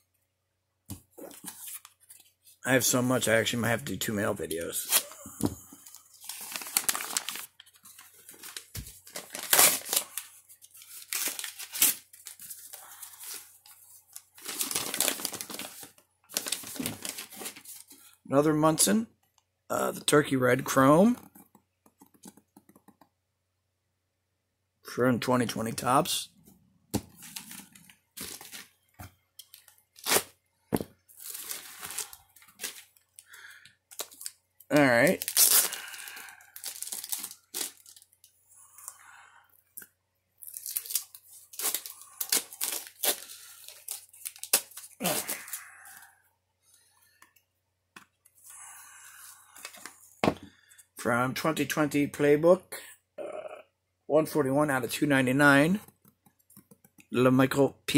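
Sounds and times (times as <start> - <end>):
packaging rustle: 5.8 - 18.0, 31.1 - 33.3, 35.1 - 38.1
paper tearing and crinkling: 6.2 - 13.5, 14.4 - 17.8, 30.0 - 30.4, 31.2 - 32.9, 35.1 - 38.0, 40.5 - 45.7.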